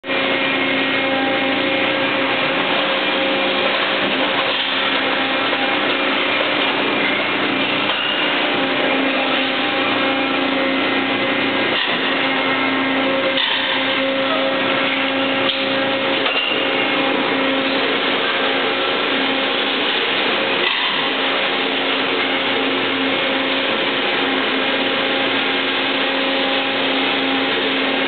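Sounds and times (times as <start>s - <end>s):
machinery humming: 0.0s - 28.0s.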